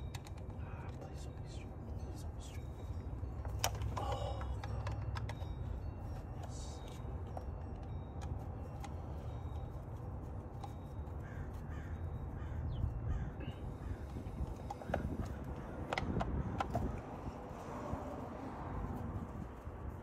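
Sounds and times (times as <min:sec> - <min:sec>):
bird cawing: 0:11.2 - 0:14.4.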